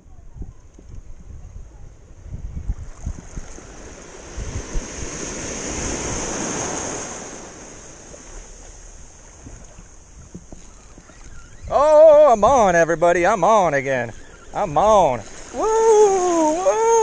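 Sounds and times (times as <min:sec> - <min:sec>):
wind buffeting microphone: 0:00.0 - 0:17.0
small wave breaking: 0:02.8 - 0:11.3.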